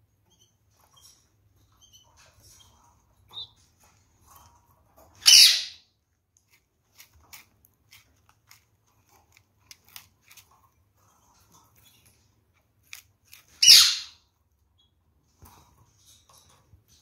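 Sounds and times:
faint bird chirp: 0.1 - 3.7
parrot harsh squawk: 5.2 - 5.8, 13.6 - 14.2
beaks cracking seeds: 6.4 - 10.8, 11.8 - 14.1.

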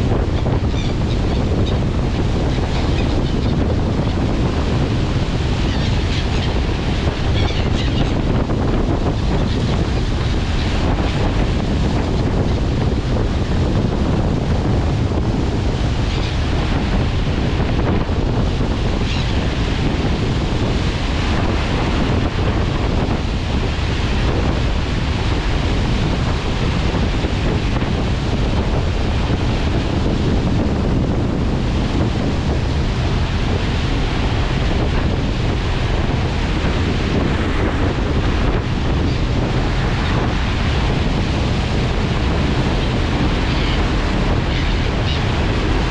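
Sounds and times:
boat wake rushing: 0.0 - 45.9
wind buffeting microphone: 0.0 - 45.9.

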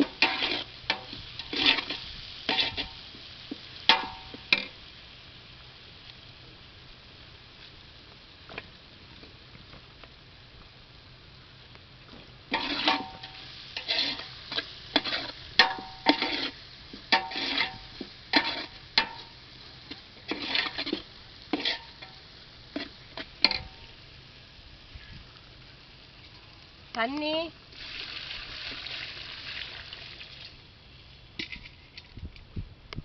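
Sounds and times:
metal ladle scraping pot: 0.0 - 3.0, 12.5 - 19.3, 20.3 - 22.2
faint sizzle: 0.0 - 32.0.

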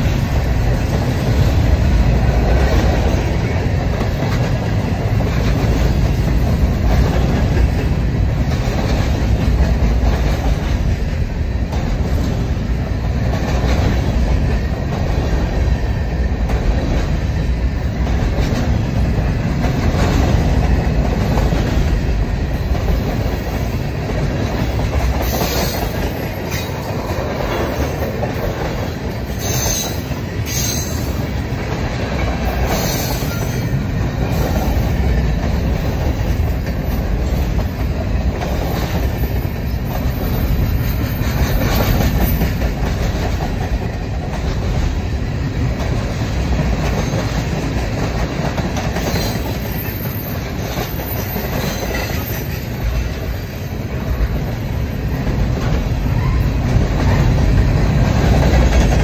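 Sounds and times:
freight train rumble: 0.0 - 59.0
wheels clicking over rail joints: 0.0 - 59.0
high wheel squeals: 29.4 - 31.2.

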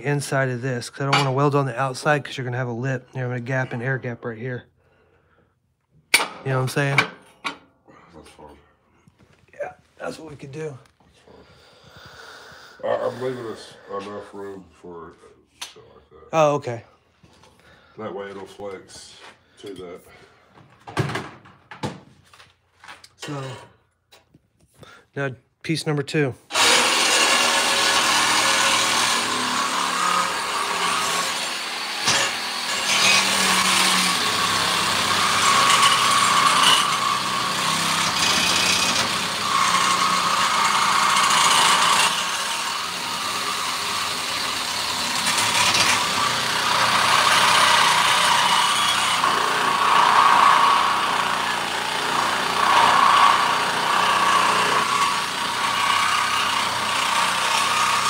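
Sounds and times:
angle grinder cutting steel: 26.5 - 58.0.

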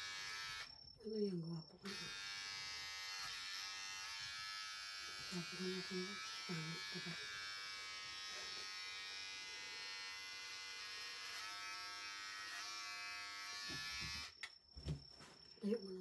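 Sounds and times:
electric hair clippers buzzing: 0.0 - 0.7, 1.8 - 14.5.

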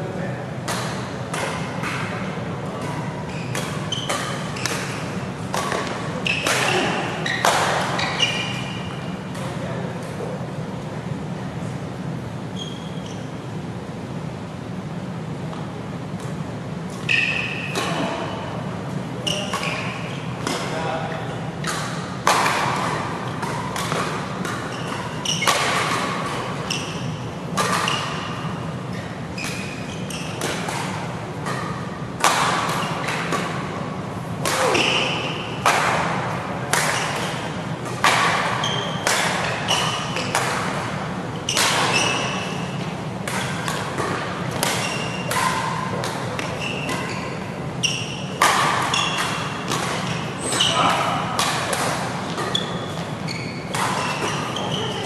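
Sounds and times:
steady low hum: 0.0 - 55.0
racket striking shuttlecock: 0.6 - 9.6, 19.3 - 20.8, 21.6 - 55.0
shoes squeaking on court: 2.8 - 9.6, 12.5 - 13.5, 16.9 - 20.9, 21.6 - 32.0, 36.8 - 55.0.

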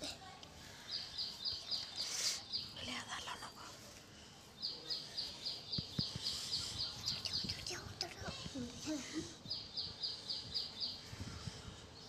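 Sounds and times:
bird chirping: 0.8 - 3.5, 4.6 - 8.4, 9.4 - 12.0.

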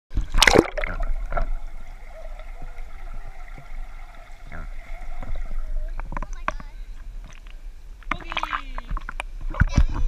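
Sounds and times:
underwater bubbles gurgling: 0.1 - 9.3
faint steady underwater hum: 0.1 - 10.0
loud splash into pool: 0.4 - 1.1.

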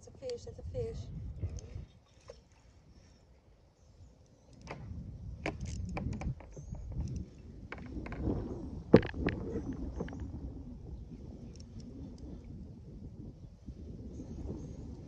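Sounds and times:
clicks and knocks on kayak hull: 4.6 - 10.4
low rumble: 4.8 - 15.0.

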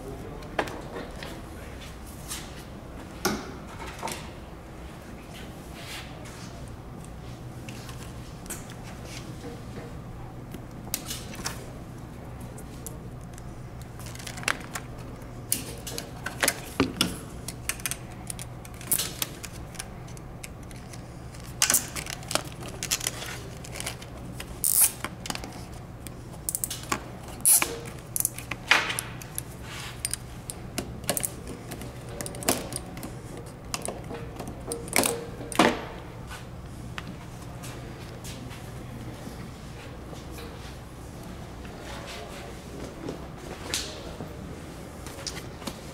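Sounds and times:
steady low hum: 0.0 - 45.9
wiring harness clicks and rustles: 12.6 - 36.0.

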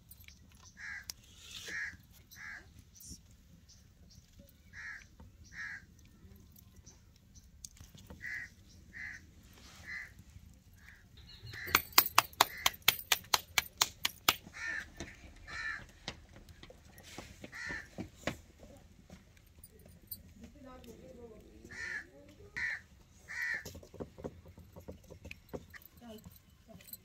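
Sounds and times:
crow cawing: 0.8 - 2.7, 4.7 - 5.9, 8.2 - 9.2, 9.8 - 10.2, 12.4 - 12.8, 14.5 - 16.0, 17.5 - 18.0, 21.6 - 23.7.

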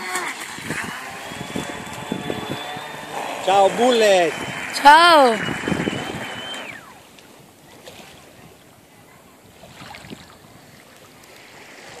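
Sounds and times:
speedboat motor whining: 0.0 - 7.5
faint wind: 0.0 - 12.0
water: 0.0 - 12.0.

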